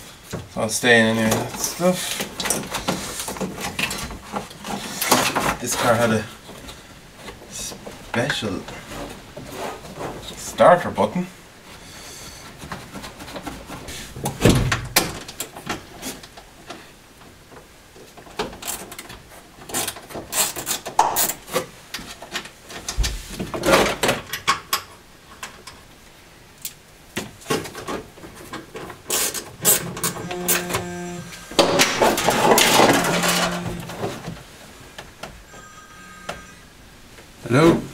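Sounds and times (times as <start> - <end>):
phone ringing: 30.1 - 31.6, 35.4 - 36.8.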